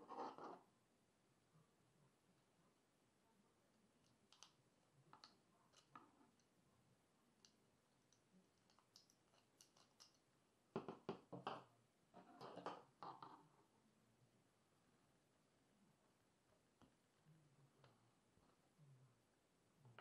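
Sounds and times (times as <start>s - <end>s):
faint clicks and taps: 4.0s - 6.5s, 7.3s - 13.4s.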